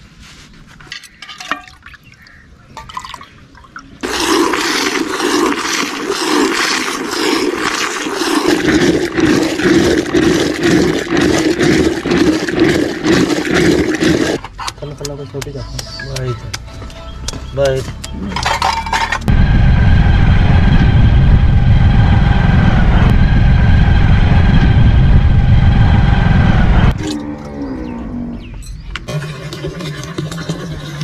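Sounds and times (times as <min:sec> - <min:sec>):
milk sloshing in clay pot: 0:04.0 - 0:14.4, 0:29.1 - 0:31.0
milk streaming into steel bucket: 0:04.0 - 0:14.4, 0:29.1 - 0:31.0.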